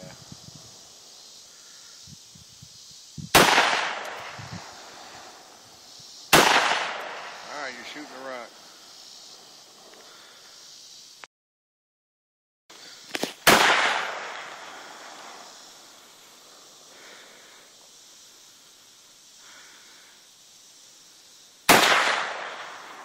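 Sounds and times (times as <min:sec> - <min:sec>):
rifle shots with echo: 0:03.4 - 0:04.4, 0:06.3 - 0:07.4, 0:13.4 - 0:14.7, 0:21.7 - 0:23.0.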